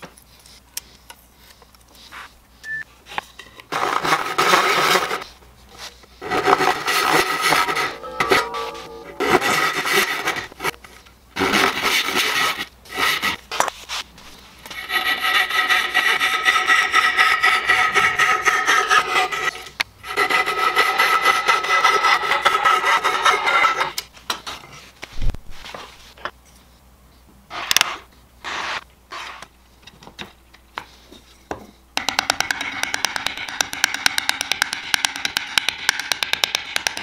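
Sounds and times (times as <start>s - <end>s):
hand saw cutting wood: 3.7s - 5.2s, 6.2s - 8.0s, 14.8s - 24.0s.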